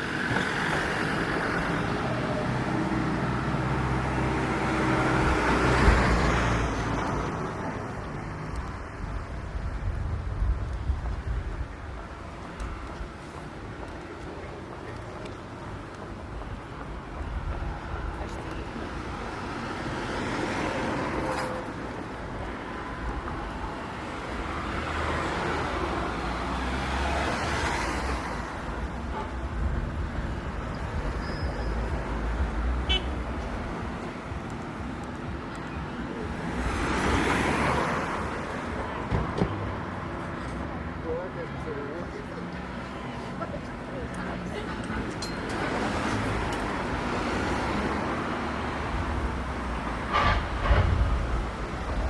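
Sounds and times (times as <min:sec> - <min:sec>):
cars passing: 0:00.0 - 0:52.0
steady low traffic rumble: 0:00.0 - 0:52.0.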